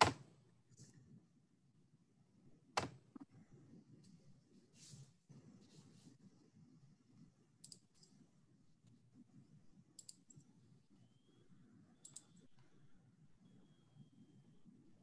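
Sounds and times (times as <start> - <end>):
faint clicks: 7.6 - 8.2, 10.0 - 10.4, 12.0 - 12.7.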